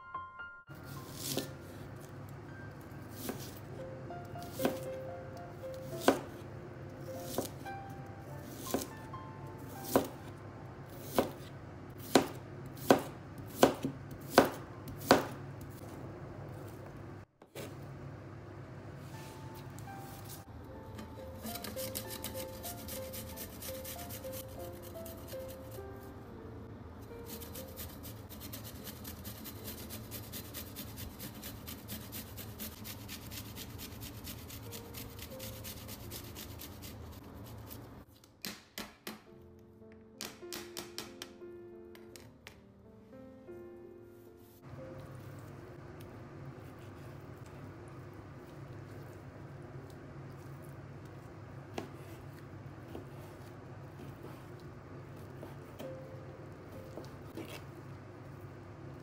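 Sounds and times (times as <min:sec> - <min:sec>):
knife chopping on board: 0:01.1 - 0:01.6, 0:03.1 - 0:03.6, 0:04.4 - 0:04.9, 0:05.8 - 0:06.4, 0:07.3 - 0:07.6, 0:08.4 - 0:09.0, 0:09.8 - 0:10.2, 0:11.0 - 0:15.4, 0:51.7 - 0:52.2, 0:52.9 - 0:54.5, 0:55.2 - 0:56.0
garlic grated on metal grater: 0:21.4 - 0:25.8, 0:27.3 - 0:37.8.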